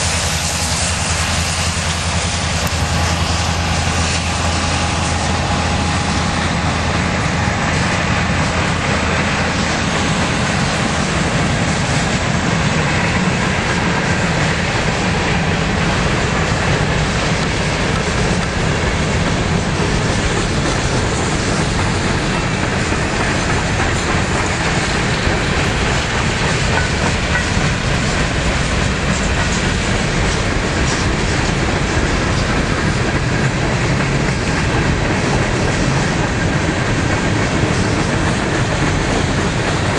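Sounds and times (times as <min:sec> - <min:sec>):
freight train rolling past: 0:00.0 - 0:39.9.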